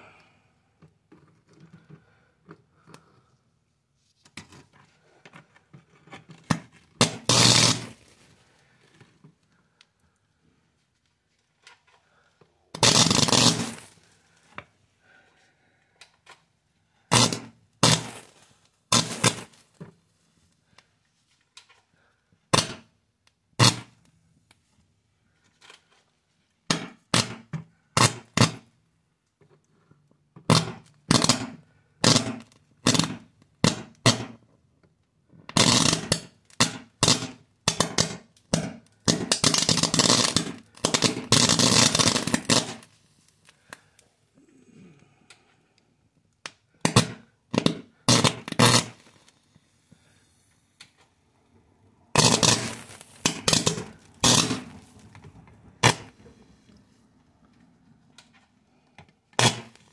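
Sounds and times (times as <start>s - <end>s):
electric arcs crackling: 7.0s - 8.0s, 12.8s - 13.9s, 17.1s - 19.6s, 39.1s - 42.9s, 48.1s - 49.1s, 52.2s - 55.0s, 59.4s - 59.9s.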